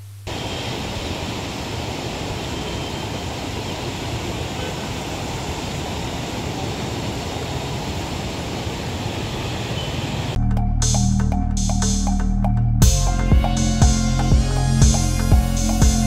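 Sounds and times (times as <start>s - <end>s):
floodwater rushing: 0.3s - 10.4s.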